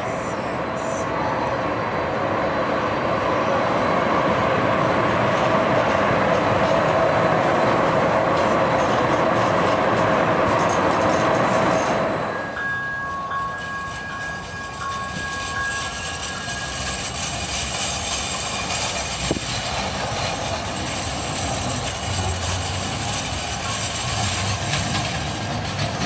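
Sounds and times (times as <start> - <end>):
light-rail train rumbling on rails: 0.0 - 26.0
held tones: 10.6 - 19.1.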